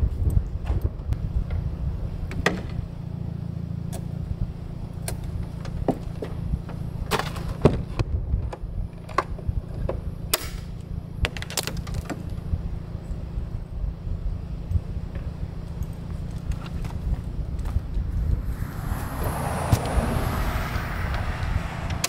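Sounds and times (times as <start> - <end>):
steady low rumble: 0.0 - 7.1, 12.2 - 22.0
knocks of hatch lids and gear: 2.3 - 2.8.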